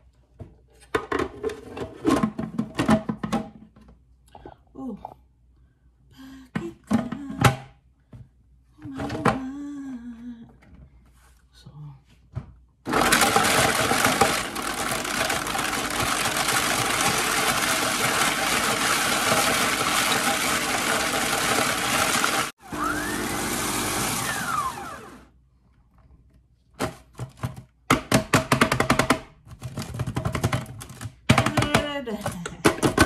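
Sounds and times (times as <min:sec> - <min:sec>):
food processor running: 0:12.9 - 0:25.3.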